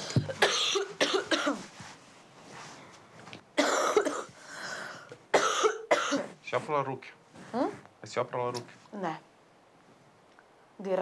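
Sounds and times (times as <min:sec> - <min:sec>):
person coughing: 0:00.2 - 0:01.6, 0:03.6 - 0:04.3, 0:05.3 - 0:06.4.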